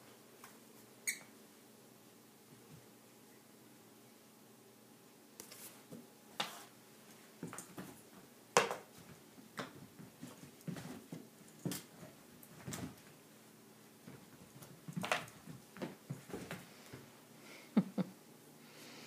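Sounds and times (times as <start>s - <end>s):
puppy scuffling on a rug: 9.0s - 13.2s, 14.0s - 17.0s.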